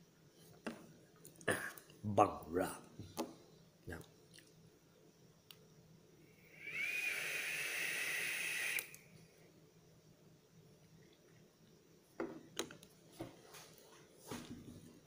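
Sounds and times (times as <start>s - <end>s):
vape hissing with whistling tone: 6.2s - 9.1s.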